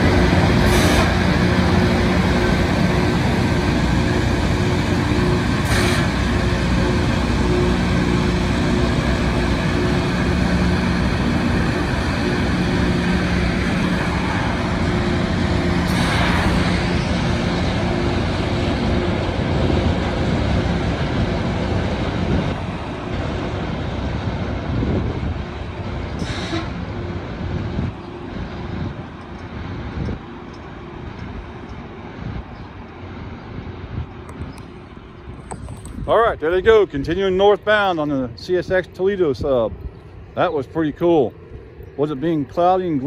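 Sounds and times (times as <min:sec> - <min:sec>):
rail grinder grinding: 0:00.0 - 0:33.2
engine hum: 0:00.0 - 0:43.0.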